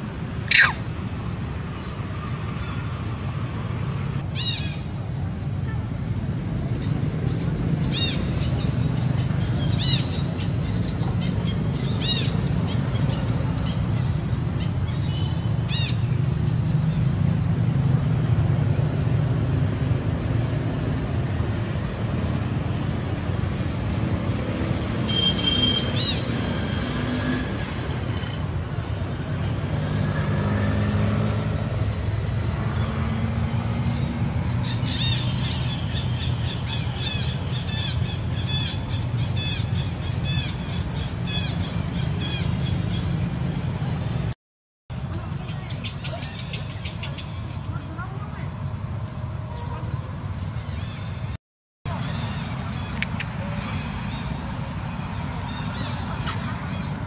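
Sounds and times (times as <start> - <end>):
high-pitched chirping animal calls: 0.5 - 0.8
squawking calls: 0.5 - 0.8.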